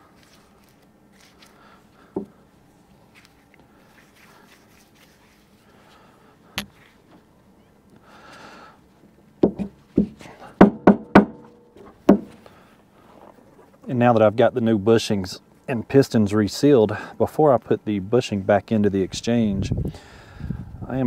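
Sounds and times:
part set down on surface: 6.6 - 6.9.

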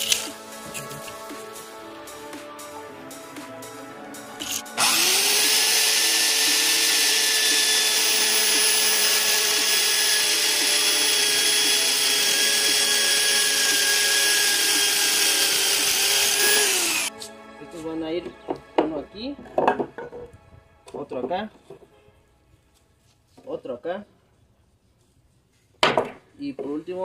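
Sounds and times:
electric drill saw cutting wood: 4.4 - 17.1.

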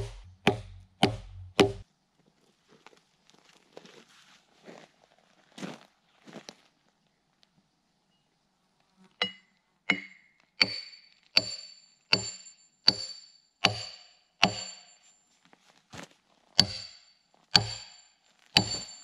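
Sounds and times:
sledgehammer striking a wedge: 0.0 - 1.8, 9.2 - 15.0, 16.6 - 19.0.

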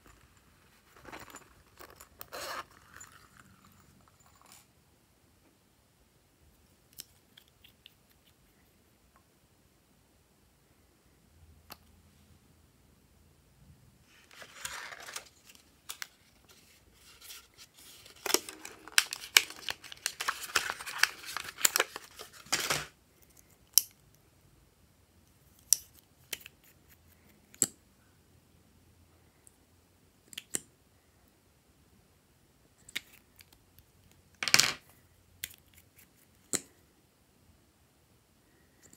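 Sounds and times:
plastic packaging clicking and crackling: 17.9 - 22.9.

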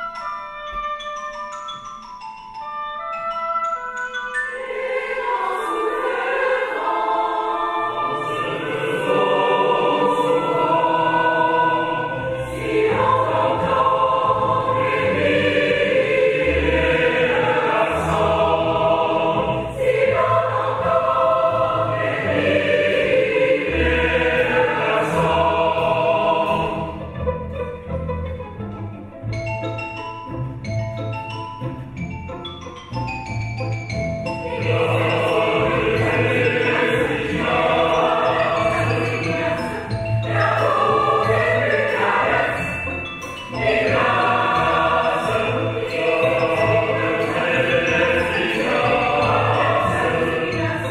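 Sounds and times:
orchestra playing: 2.7 - 50.9
choir singing: 4.6 - 27.2, 34.4 - 50.9.

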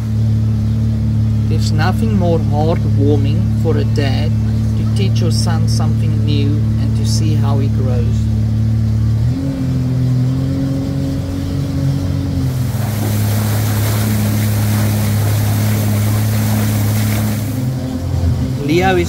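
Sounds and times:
jet boat engine running: 0.0 - 19.0
wind hiss: 12.4 - 17.8
water spray rushing: 12.4 - 18.0.

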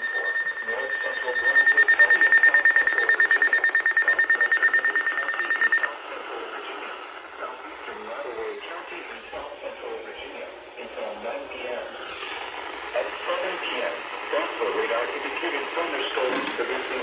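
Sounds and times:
weather radio alarm tone and beeping: 0.0 - 5.9.

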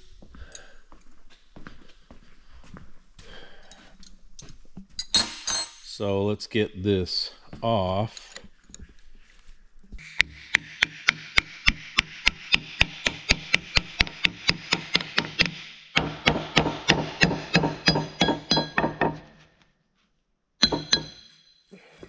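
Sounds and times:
ringing metallic clink: 5.0 - 5.9, 17.9 - 19.1, 20.6 - 21.6.

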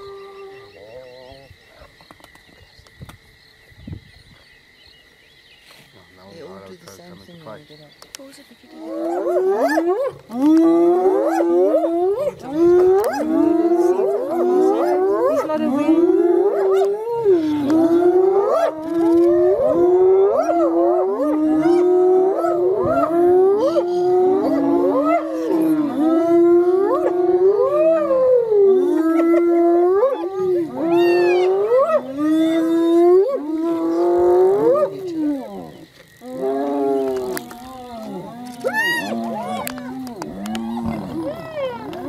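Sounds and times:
hyenas whining and yelping: 8.8 - 42.0.

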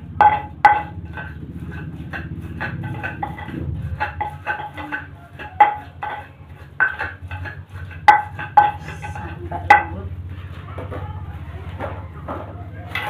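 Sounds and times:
knocks ringing in metal bowl: 0.0 - 11.2, 11.8 - 13.0.

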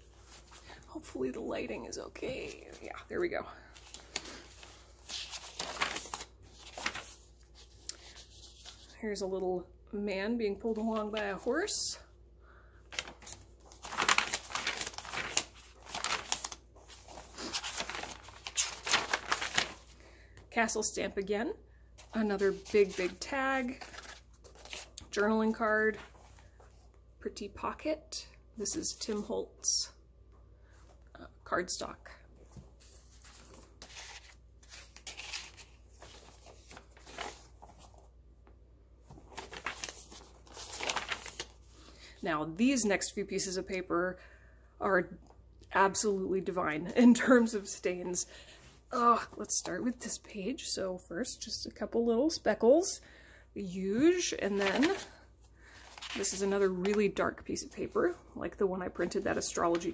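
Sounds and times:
paper pages rustling: 2.2 - 9.0, 12.9 - 20.0, 22.0 - 26.9, 32.4 - 38.1, 39.0 - 42.0, 54.2 - 58.2.

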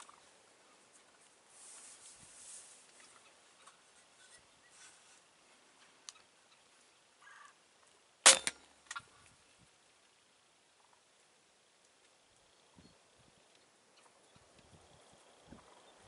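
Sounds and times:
crossbow firing snap: 8.3 - 8.6
second crack: 8.3 - 8.6.

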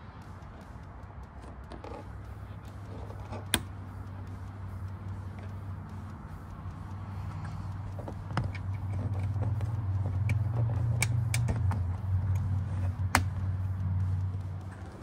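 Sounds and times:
engine idling hum: 0.0 - 15.0
plastic clips clicking: 10.2 - 13.4.

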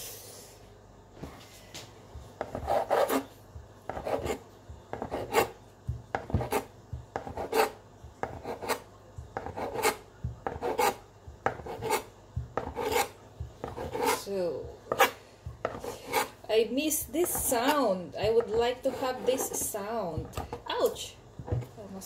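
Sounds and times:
knife cutting dough on board: 3.9 - 16.4, 17.2 - 20.8.

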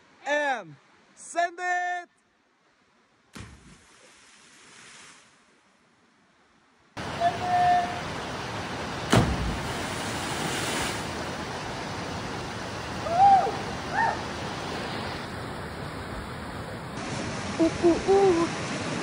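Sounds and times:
rushing river current: 7.0 - 19.0
person shouting: 7.2 - 8.0
splash into water: 9.0 - 11.1.

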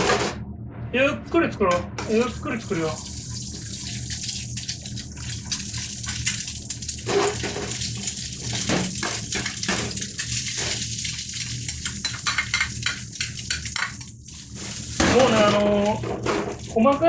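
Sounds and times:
egg sizzling in hot oil: 2.8 - 16.8
ladle stirring in wok: 5.0 - 17.0.

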